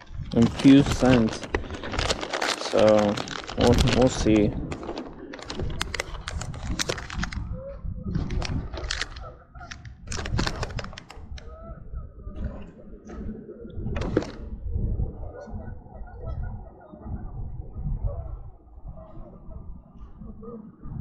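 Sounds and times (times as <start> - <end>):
plastic packaging crinkling: 0.0 - 7.5, 8.2 - 11.4
steady low rumble: 0.0 - 21.0.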